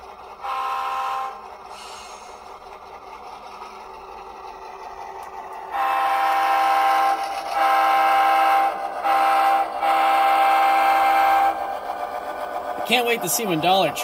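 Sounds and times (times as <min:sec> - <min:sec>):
faint diesel engine idling: 0:00.0 - 0:14.0
locomotive horn blasts: 0:00.4 - 0:01.5, 0:05.7 - 0:11.8.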